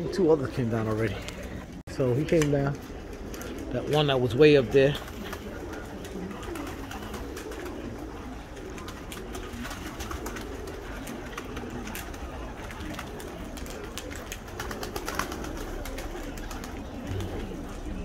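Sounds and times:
pigeons cooing: 0:00.0 - 0:18.0
wings flapping: 0:00.0 - 0:18.0.

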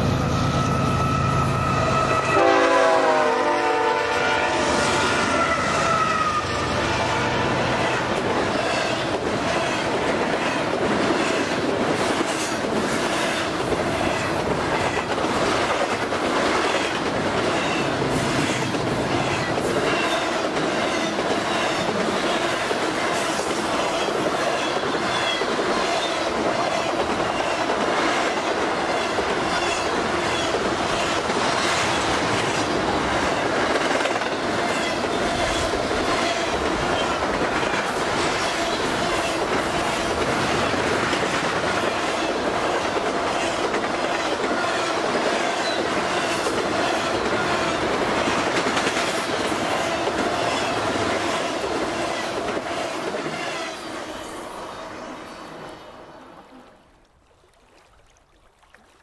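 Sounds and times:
train wheels rumbling on rail: 0:00.0 - 0:55.6
clickety-clack over rail joints: 0:07.8 - 0:54.3.

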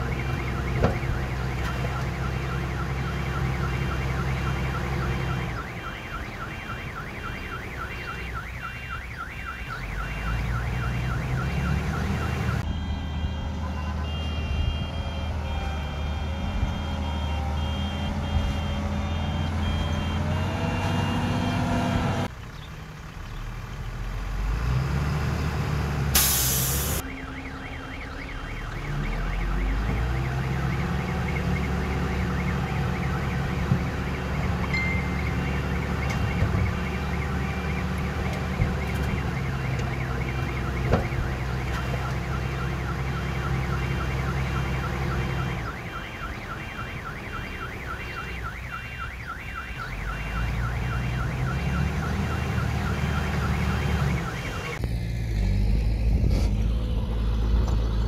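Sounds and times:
reversing alarm beeping: 0:00.0 - 0:22.2, 0:26.2 - 0:54.8
diesel engines of heavy machinery: 0:00.0 - 0:58.0
burst of hiss: 0:26.2 - 0:27.0
lower-pitched beeper: 0:26.2 - 0:37.9.

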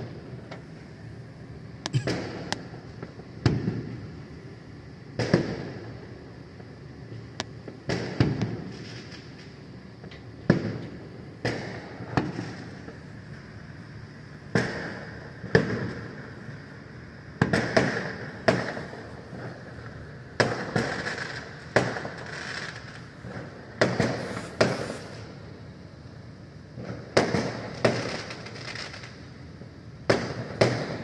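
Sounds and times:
fireworks bangs with echo: 0:02.0 - 0:02.8, 0:03.4 - 0:04.0, 0:05.2 - 0:05.9, 0:07.7 - 0:09.4, 0:11.4 - 0:12.8, 0:14.5 - 0:16.2, 0:17.4 - 0:19.5, 0:20.4 - 0:25.2, 0:26.8 - 0:29.1, 0:30.0 - 0:31.0.

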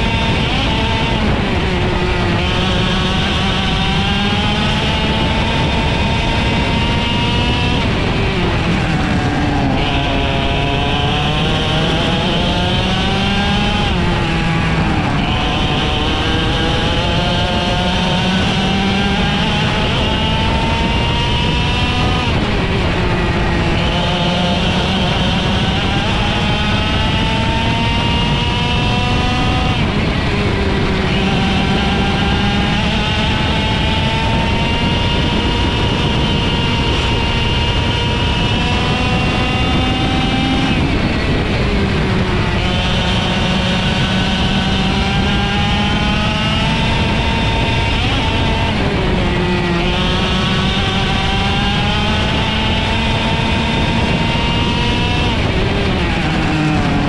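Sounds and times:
kart engine revving: 0:00.0 - 0:57.0.

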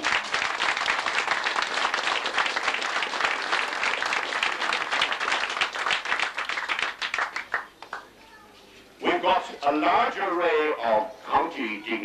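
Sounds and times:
crowd applauding: 0:00.0 - 0:08.1.

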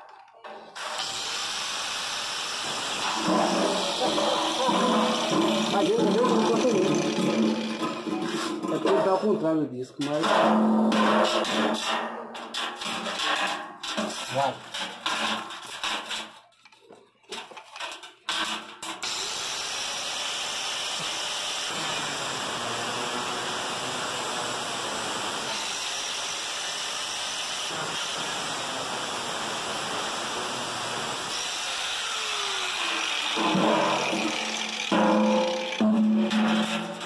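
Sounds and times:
angle grinder cutting metal: 0:00.7 - 0:09.3, 0:18.3 - 0:37.0.

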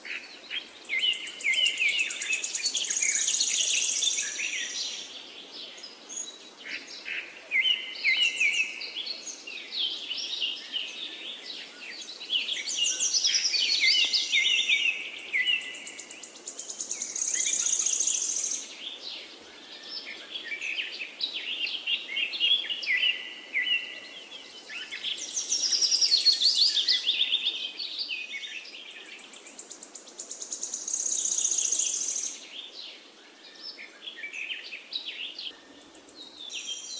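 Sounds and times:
birds chirping and singing: 0:00.1 - 0:36.9.

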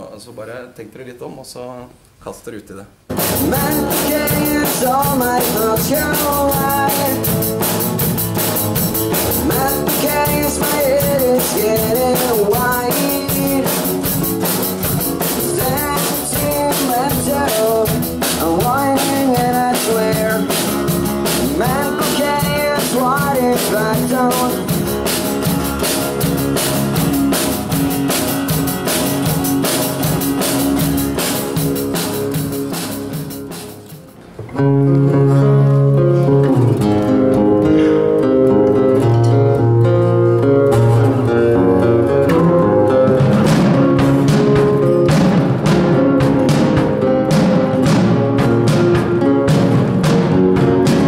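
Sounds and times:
acoustic guitars strummed: 0:03.1 - 0:51.0
drum kit beat: 0:03.1 - 0:51.0
man singing: 0:03.2 - 0:07.7, 0:09.2 - 0:14.5, 0:15.2 - 0:25.1, 0:41.2 - 0:44.0.

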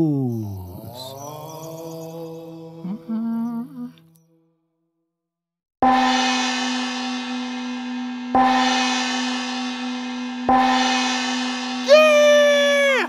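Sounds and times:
meditation bell ringing: 0:00.3 - 0:03.7.

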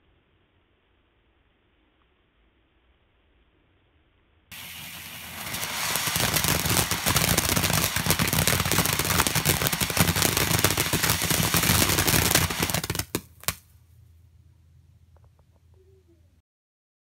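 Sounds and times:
firework crackling hiss: 0:04.5 - 0:13.6
sharp pops: 0:04.5 - 0:13.6.

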